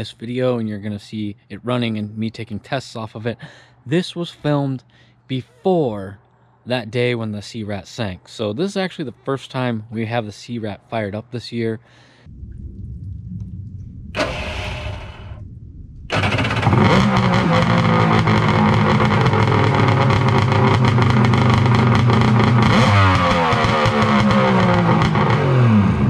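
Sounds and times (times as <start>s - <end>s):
jet ski engine starting and running: 14.2s - 15.4s, 16.1s - 26.0s.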